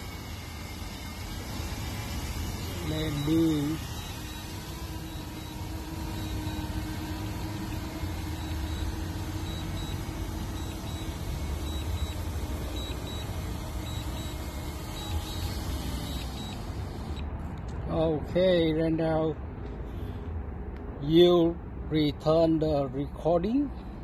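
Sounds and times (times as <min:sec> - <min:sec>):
faint steady hum: 0:00.0 - 0:18.5.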